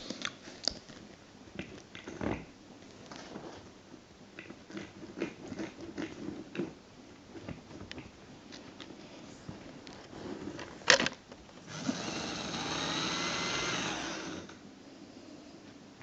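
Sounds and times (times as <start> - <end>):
pet gnawing and chewing: 0.0 - 3.6, 4.4 - 9.0.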